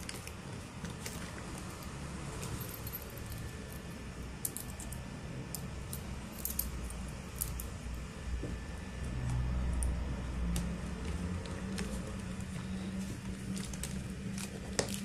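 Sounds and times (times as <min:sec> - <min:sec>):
keys jangling: 0:01.0 - 0:03.8, 0:04.4 - 0:07.7.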